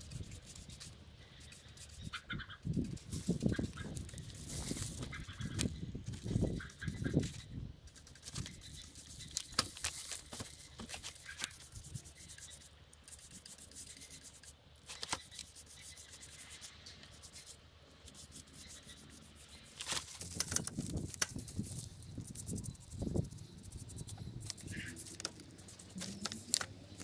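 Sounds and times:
rubbing and scraping on wood: 0.0s - 27.0s.

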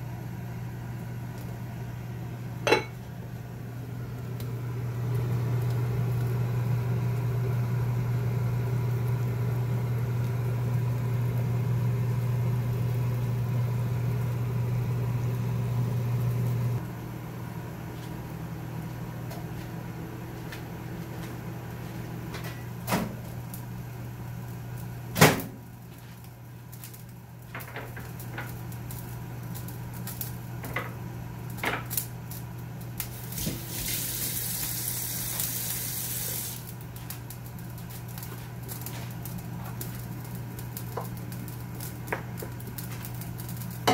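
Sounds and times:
appliance electrical hum: 0.0s - 43.9s.

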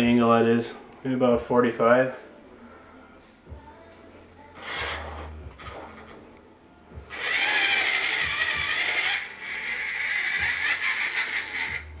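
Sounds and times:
small electric motor whining: 4.6s - 6.2s, 7.1s - 12.0s.

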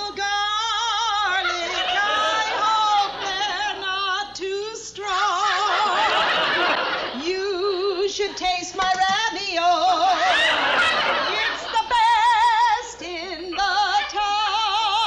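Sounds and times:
woman singing operatic notes: 0.0s - 6.0s, 7.2s - 10.5s, 11.3s - 15.0s
audience laughter: 1.2s - 3.9s, 5.4s - 7.3s, 10.0s - 12.6s.

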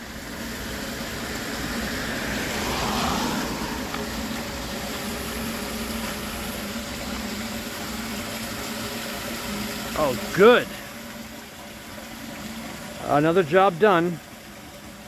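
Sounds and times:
steady low hum: 0.0s - 15.0s
water rushing into storm drain: 0.0s - 15.0s.

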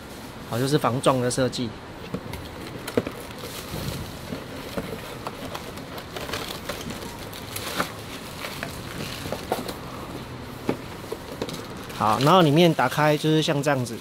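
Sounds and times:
cardboard packaging scraping: 2.5s - 14.0s
plastic bag crinkling: 2.8s - 9.8s, 11.6s - 14.0s.

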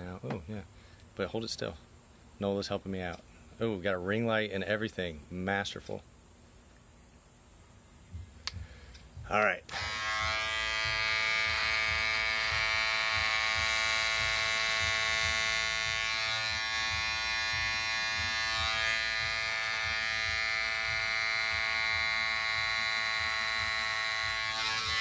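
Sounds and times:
electric hair clippers buzzing: 9.6s - 25.0s.

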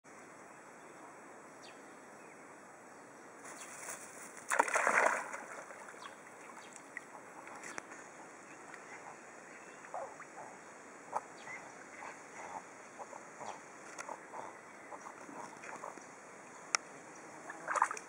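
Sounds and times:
dog rustling through grass: 3.4s - 4.6s
dog splashing into water: 4.4s - 6.1s.

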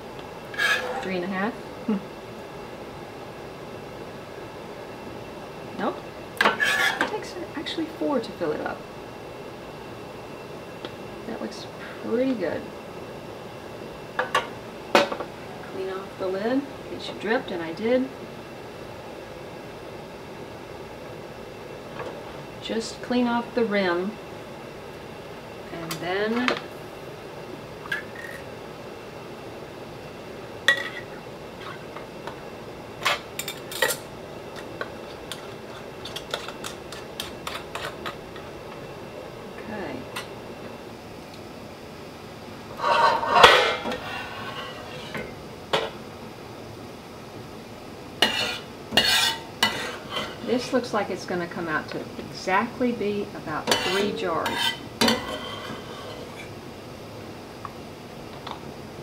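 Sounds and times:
steady background hiss: 0.0s - 59.0s
low steady hiss: 38.0s - 59.0s.

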